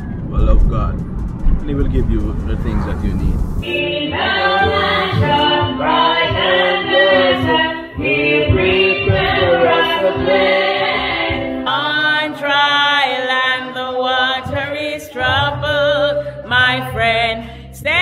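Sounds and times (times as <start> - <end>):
choir singing: 3.6 - 17.1.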